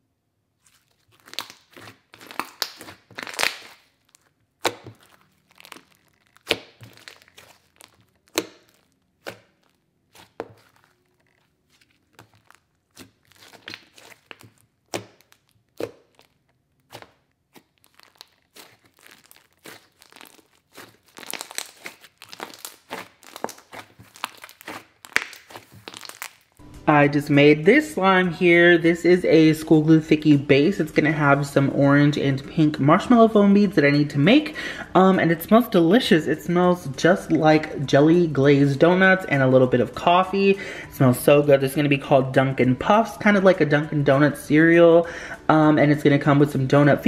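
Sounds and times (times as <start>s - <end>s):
slime crackling and popping: 0.6s - 26.6s.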